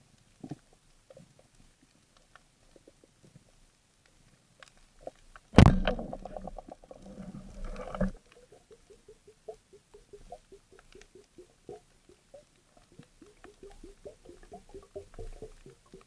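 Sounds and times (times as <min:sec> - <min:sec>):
faint underwater clicking: 0:00.4 - 0:16.0
sharp underwater knock: 0:05.6 - 0:06.6
rapid rattling and bubbling: 0:05.8 - 0:16.0.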